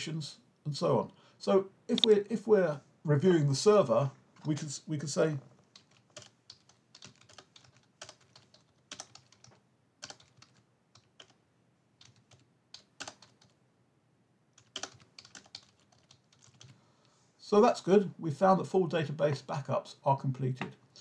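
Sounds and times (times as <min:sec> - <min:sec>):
computer keyboard typing: 0:05.7 - 0:11.4, 0:12.0 - 0:13.6, 0:14.6 - 0:16.8.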